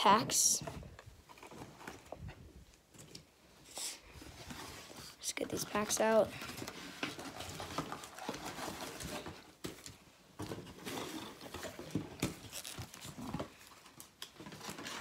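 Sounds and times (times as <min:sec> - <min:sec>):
wrappers rustling and crinkling: 0:04.2 - 0:15.0.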